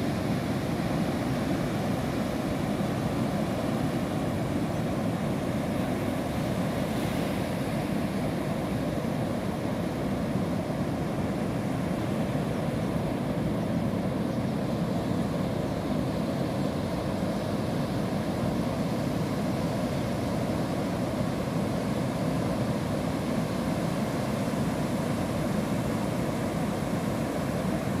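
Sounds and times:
sea waves breaking: 0.0s - 21.8s.

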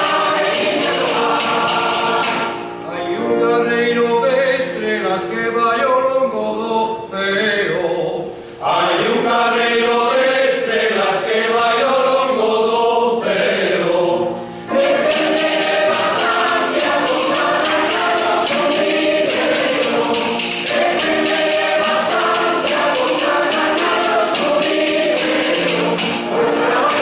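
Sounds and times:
rhythmic percussion beat: 0.0s - 2.7s, 14.7s - 27.0s
mixed choir singing: 0.0s - 4.5s, 7.2s - 27.0s.

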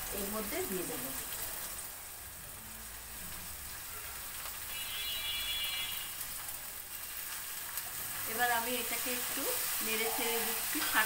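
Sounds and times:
low sizzling of frying: 0.0s - 11.0s.

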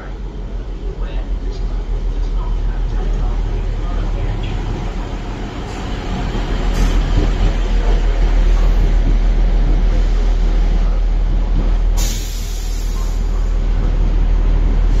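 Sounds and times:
diesel train engine drone: 0.0s - 15.0s
air hiss: 12.0s - 13.3s.

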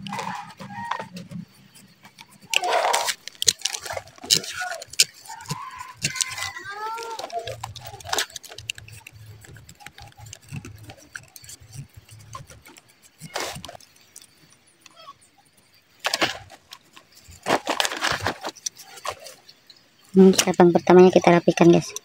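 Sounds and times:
knife scraping wood: 0.0s - 14.6s.

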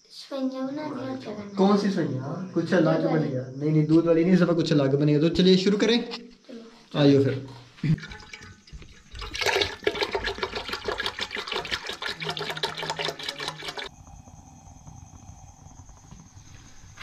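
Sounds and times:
milk pouring into pot: 7.8s - 14.0s.

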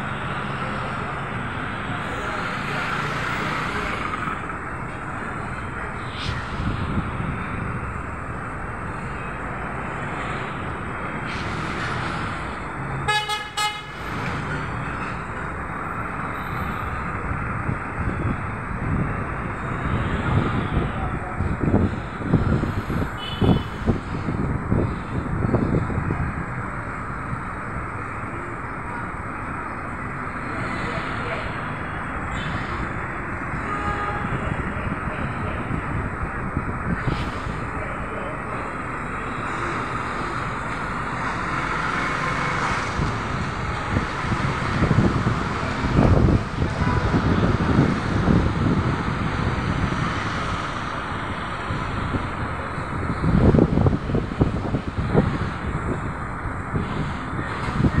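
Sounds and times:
busy street traffic: 0.0s - 58.0s
vehicle horn toots: 13.1s - 13.9s.

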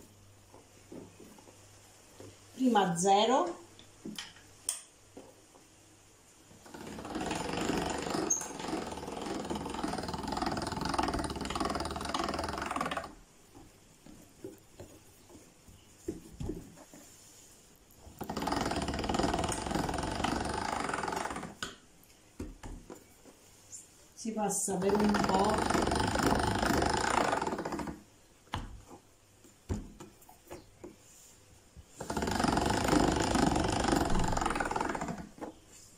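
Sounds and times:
hand-cranked pasta machine: 6.6s - 13.2s, 18.2s - 21.7s, 24.8s - 28.0s, 32.0s - 35.4s.

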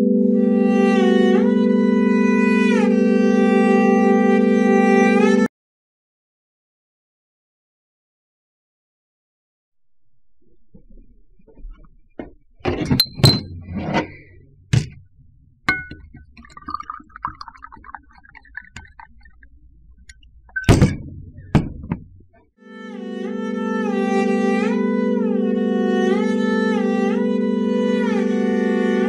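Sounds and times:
music of long held notes: 0.0s - 5.5s, 22.6s - 29.0s
glass bottles clinking on table: 15.7s - 17.7s
liquor pouring into glass: 15.7s - 19.5s.

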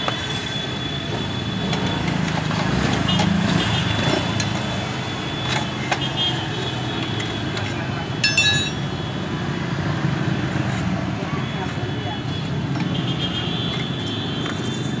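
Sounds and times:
sharp metallic ring: 8.2s - 8.8s.

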